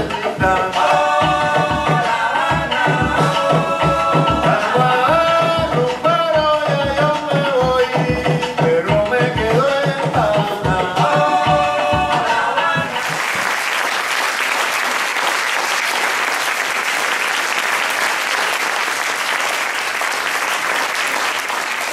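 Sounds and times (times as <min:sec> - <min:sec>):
audience applause: 0:13.0 - 0:21.9.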